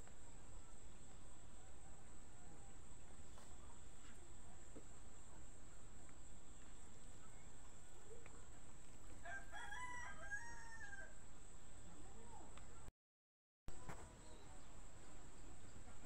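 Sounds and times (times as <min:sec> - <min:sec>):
rooster crowing: 0:09.2 - 0:11.2.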